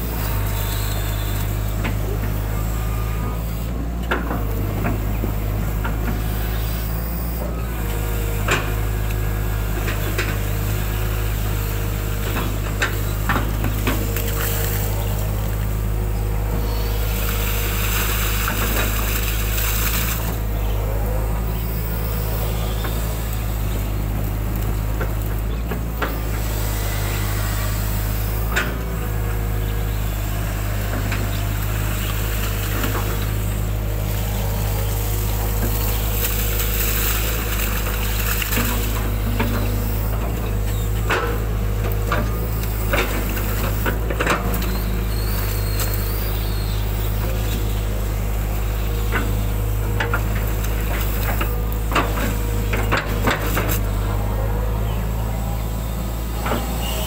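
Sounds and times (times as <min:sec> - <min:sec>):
excavator diesel engine running: 0:00.0 - 0:57.0
bucket scraping across wet mud: 0:34.0 - 0:41.0.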